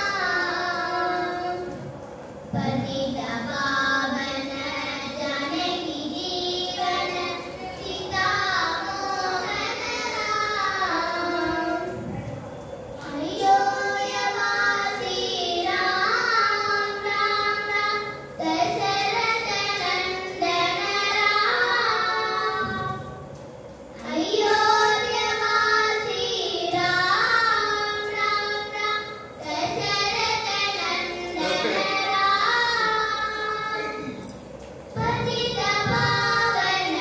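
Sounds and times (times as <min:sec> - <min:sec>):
girls singing a vocal duet: 0:00.0 - 0:12.4, 0:13.0 - 0:37.0.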